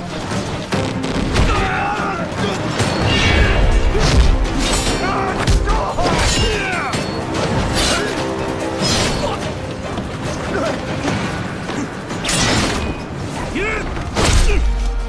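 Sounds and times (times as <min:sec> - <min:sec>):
dramatic orchestral music: 0:00.0 - 0:15.0
swords clashing: 0:02.5 - 0:09.4.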